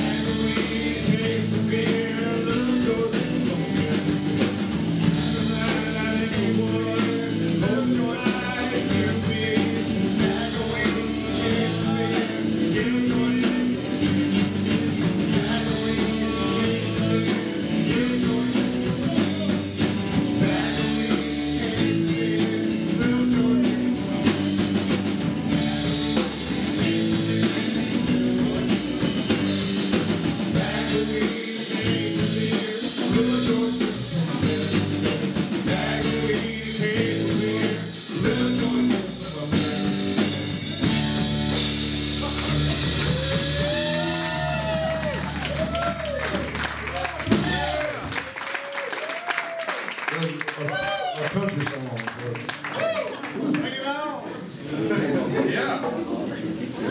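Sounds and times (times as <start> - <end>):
drum kit groove: 0.0 - 48.3
electric guitars: 0.0 - 48.3.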